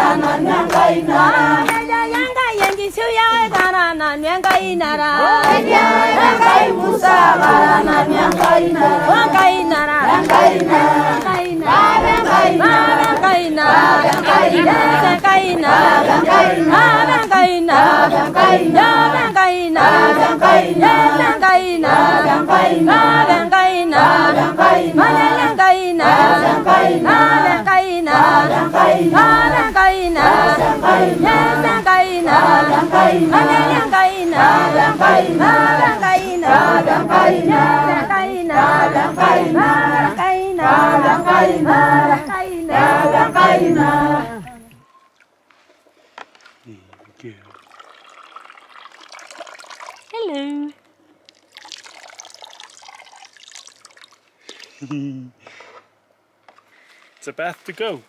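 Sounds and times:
choir singing: 0:00.0 - 0:44.8.

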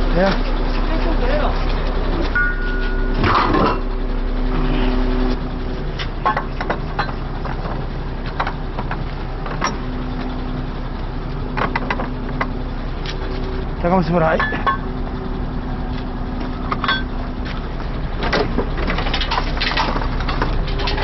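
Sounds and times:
heavy engine idling: 0:00.0 - 0:21.0.

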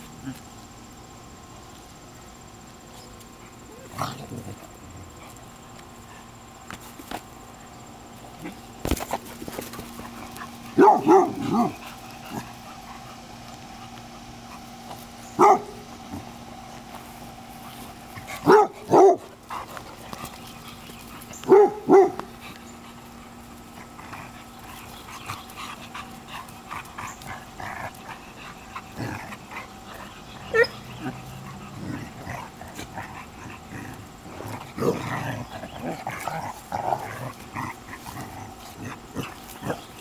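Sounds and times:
dog barking: 0:10.8 - 0:11.8, 0:15.4 - 0:15.8, 0:18.4 - 0:19.3, 0:21.4 - 0:22.2.

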